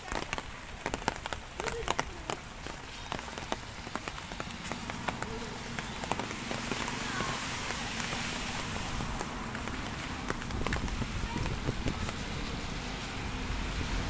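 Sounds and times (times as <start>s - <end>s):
soft raindrop ticks: 0.0s - 14.0s.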